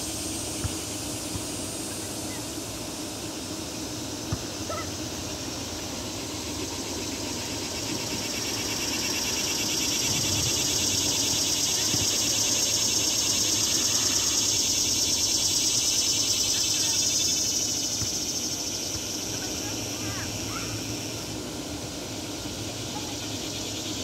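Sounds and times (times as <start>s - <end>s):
high-pitched insect buzz: 4.6s - 21.4s.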